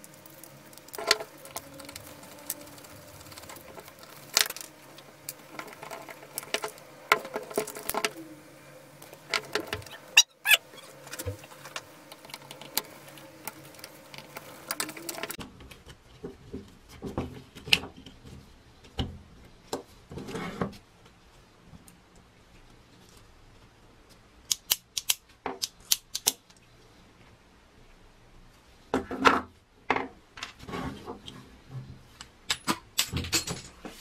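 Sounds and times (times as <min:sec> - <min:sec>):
small metal clicks and scratching: 0:00.0 - 0:08.2, 0:09.0 - 0:15.9.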